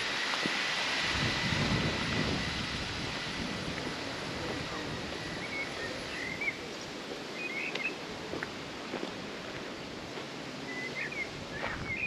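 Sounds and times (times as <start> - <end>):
outdoor background hiss: 0.0 - 12.0
small birds chirping: 5.2 - 8.0, 10.6 - 12.0.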